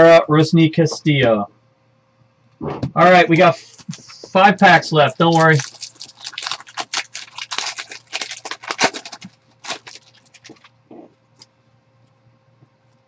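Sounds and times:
foil wrapper crinkling and tearing: 3.7s - 10.8s.

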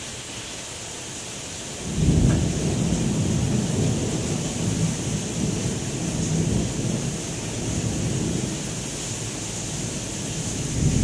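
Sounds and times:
heavy rain hissing: 0.0s - 11.0s
thunder cracking and rumbling: 1.8s - 8.8s, 9.7s - 11.0s.

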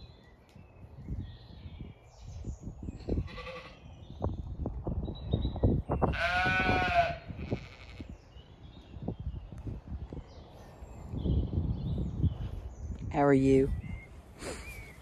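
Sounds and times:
lamb bleating: 3.2s - 3.8s, 6.1s - 8.1s.

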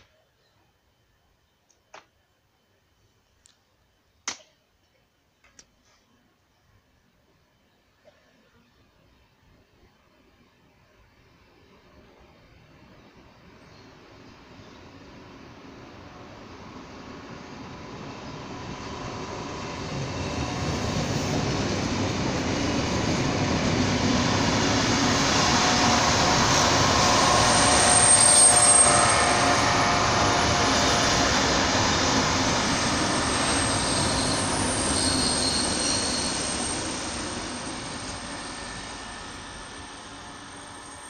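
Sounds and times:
faint high whine: 0.0s - 41.0s
train wheels on rails: 12.8s - 41.0s.

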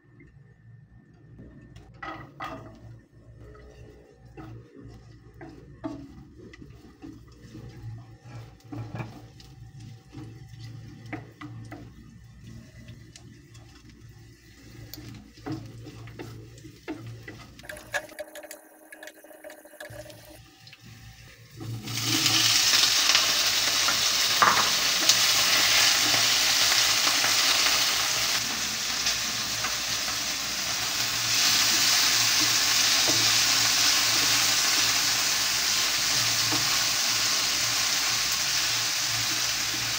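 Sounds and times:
spatula tapping and scraping pan: 2.0s - 13.9s, 14.6s - 18.5s, 23.1s - 26.9s
garlic sizzling in a pan: 2.0s - 17.7s, 20.4s - 39.9s
tomatoes frying loudly: 2.0s - 17.9s, 20.3s - 39.9s.

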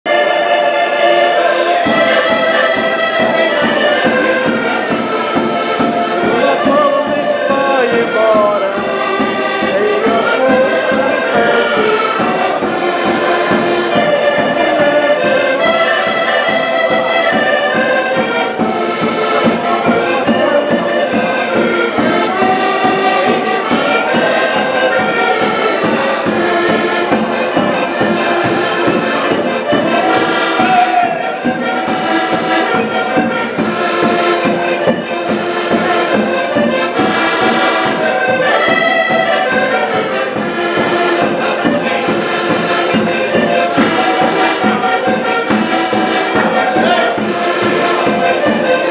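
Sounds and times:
accordions playing in unison: 0.0s - 48.9s
small strummed string instrument: 0.1s - 48.9s.

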